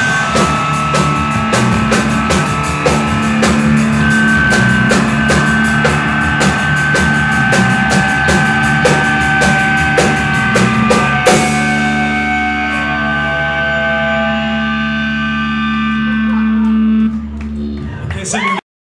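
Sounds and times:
cymbal crash: 0.0s - 13.4s
ringing guitar chord: 0.0s - 18.0s
live rock band playing: 0.0s - 18.6s.

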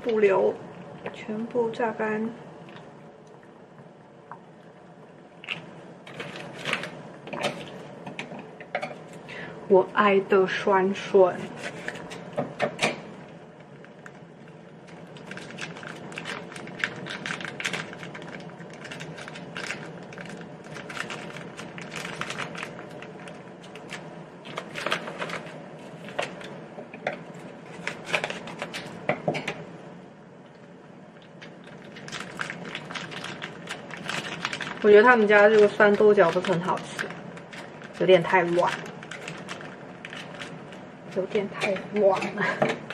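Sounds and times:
plastic sachets crinkling: 13.7s - 26.6s, 27.4s - 29.0s, 31.3s - 42.9s.

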